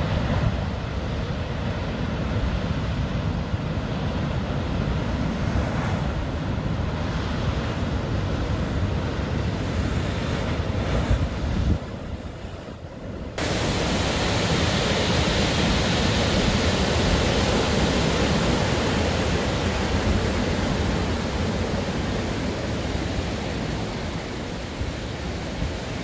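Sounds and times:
ocean surf breaking: 8.8s - 26.0s.

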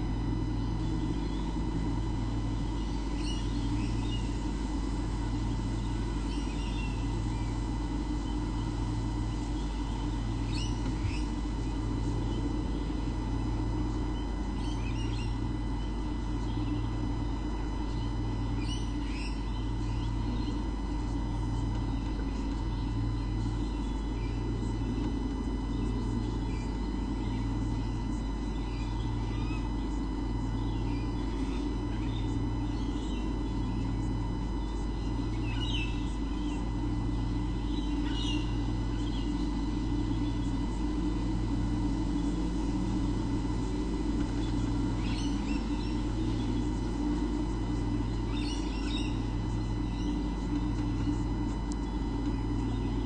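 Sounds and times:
electrical hum with low throb: 0.0s - 53.0s
faint bird chirps: 2.5s - 4.3s, 5.4s - 7.6s, 9.4s - 12.9s, 13.8s - 16.9s, 17.9s - 20.6s, 25.7s - 33.9s, 37.6s - 40.6s, 44.3s - 53.0s.

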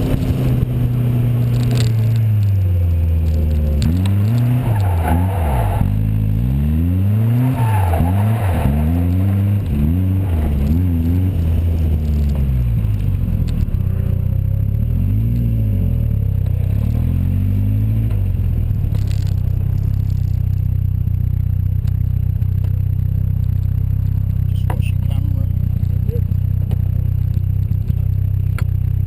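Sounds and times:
sports car engine revving: 0.0s - 29.0s.

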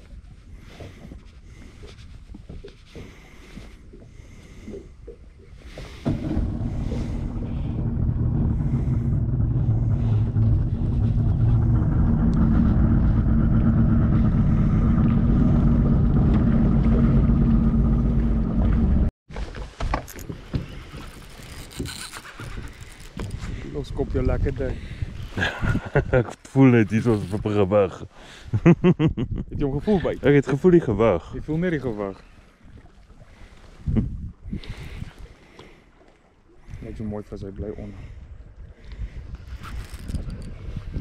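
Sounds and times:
boat motor running: 5.8s - 19.1s.

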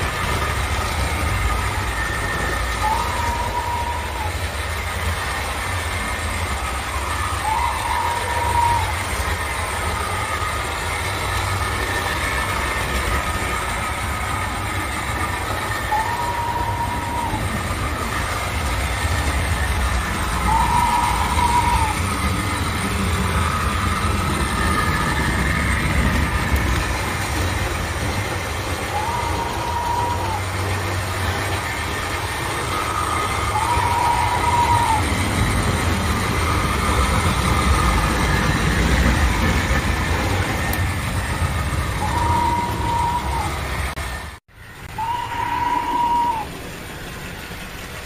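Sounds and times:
train rumbling: 0.0s - 48.0s.

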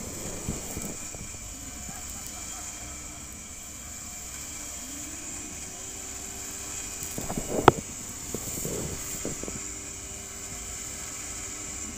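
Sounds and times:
rising whine: 0.0s - 11.9s
vehicle motor low hum: 0.0s - 11.9s.

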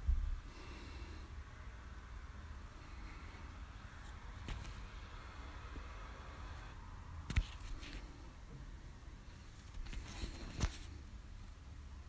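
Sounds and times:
faint rustling: 7.4s - 11.6s.

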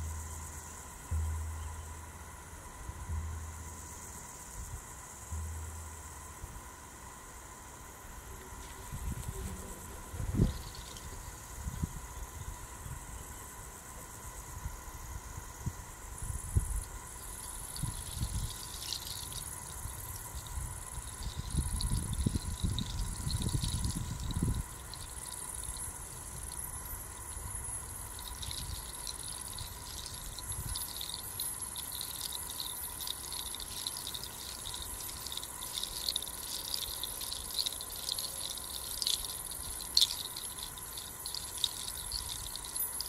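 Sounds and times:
crickets chirring: 0.0s - 43.0s
hand rattle clattering: 10.3s - 11.3s, 17.2s - 43.0s.

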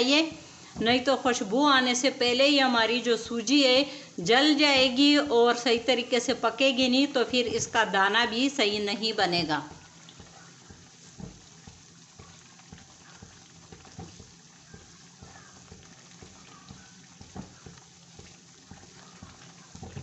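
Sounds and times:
soft steady sizzle: 0.0s - 20.0s
spoon stirring in pan: 9.7s - 20.0s.

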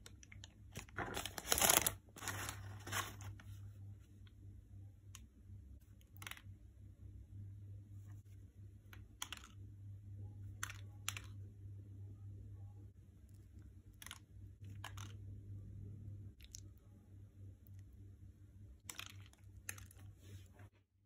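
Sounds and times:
low steady hum: 0.0s - 21.0s
paper wrapper crinkling: 0.7s - 3.6s.

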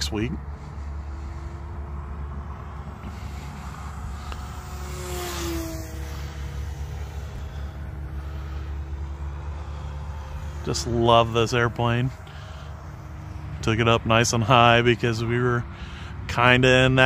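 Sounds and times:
steady low rumble: 0.0s - 17.0s
model plane propeller whine: 0.4s - 13.7s.

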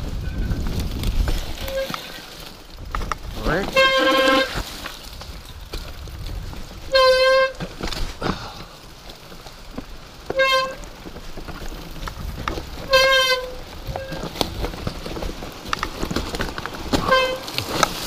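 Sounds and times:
bike rattling over rocks: 0.0s - 18.0s
bike brakes squealing: 3.7s - 4.6s, 6.9s - 7.6s.

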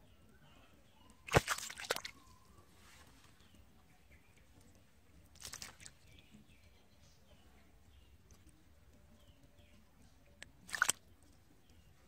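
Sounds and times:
fish thrashing in mud: 1.3s - 2.2s, 5.4s - 5.9s, 10.7s - 11.0s.

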